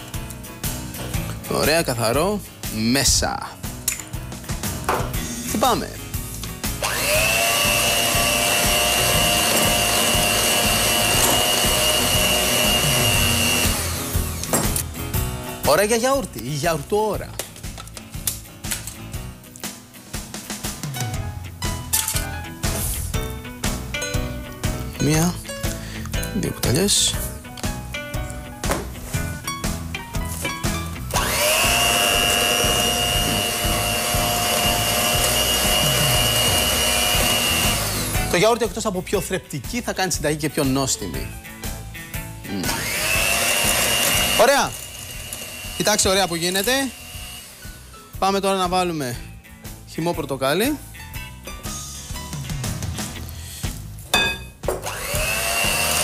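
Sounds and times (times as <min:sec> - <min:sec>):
electric hand mixer whining: 0:06.7 - 0:14.5, 0:31.1 - 0:38.3, 0:42.5 - 0:47.9, 0:54.7 - 0:56.0
beaters whisking batter: 0:31.2 - 0:38.4, 0:42.8 - 0:47.0.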